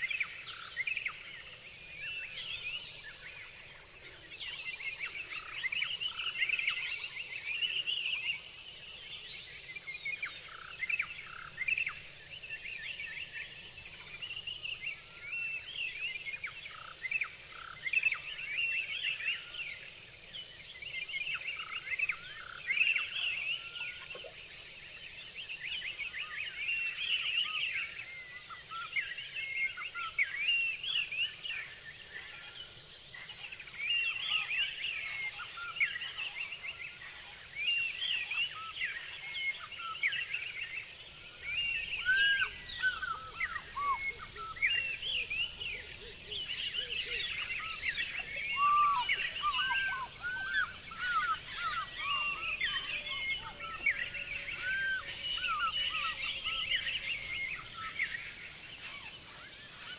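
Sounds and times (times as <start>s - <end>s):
high insect drone: 0.0s - 59.9s
birds chirping and whistling: 41.4s - 59.9s.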